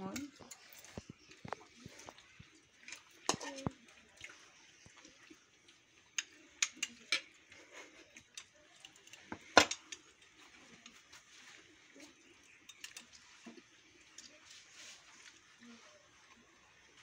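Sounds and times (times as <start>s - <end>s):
tableware clinking: 8.3s - 10.1s.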